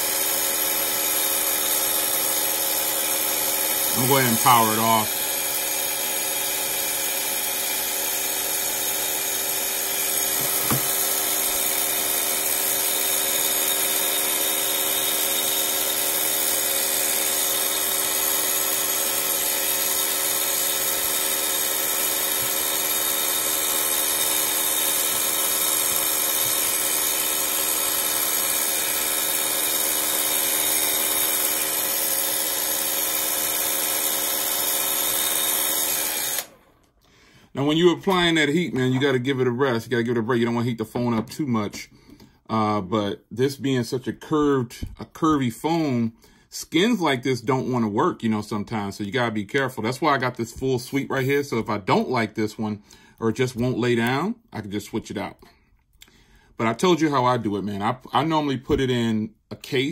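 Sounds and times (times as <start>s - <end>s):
blow dryer running: 0.0s - 36.8s.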